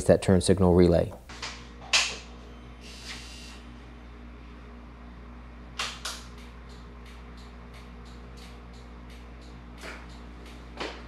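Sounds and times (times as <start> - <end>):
steady low hum: 0.0 - 11.0
turn-signal relay ticking: 6.4 - 10.6.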